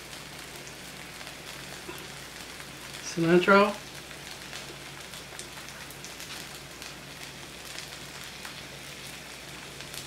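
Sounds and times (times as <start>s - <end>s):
food sizzling on a griddle: 0.0s - 10.0s
crackling pops: 3.8s - 10.0s.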